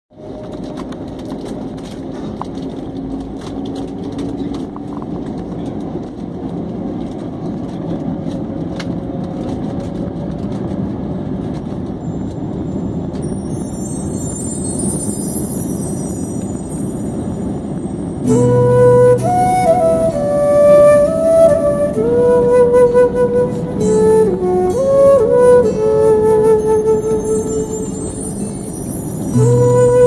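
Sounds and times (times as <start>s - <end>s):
jet engines and wheels rumbling: 0.1s - 30.0s
faint high music notes: 12.0s - 30.0s.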